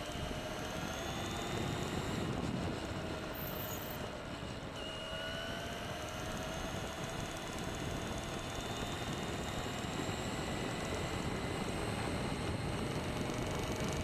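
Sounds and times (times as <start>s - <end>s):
electric motor whine: 0.0s - 14.0s.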